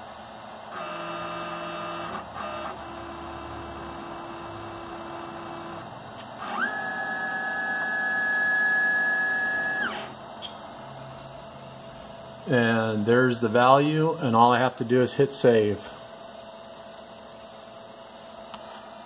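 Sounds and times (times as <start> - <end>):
mill drive motor whining: 0.0 - 13.5.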